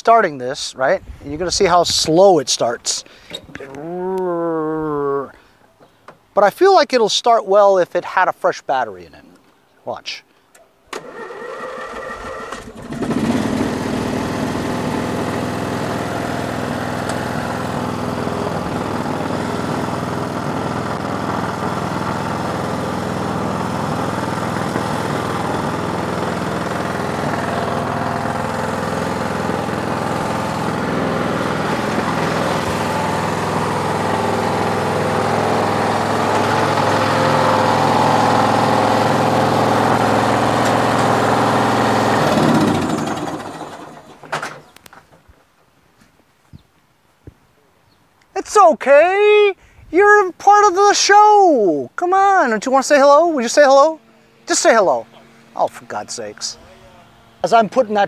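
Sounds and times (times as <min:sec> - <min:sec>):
mower engine starter cranking: 0:10.5 - 0:45.0
mower engine running: 0:11.0 - 0:44.8, 0:53.0 - 0:58.0.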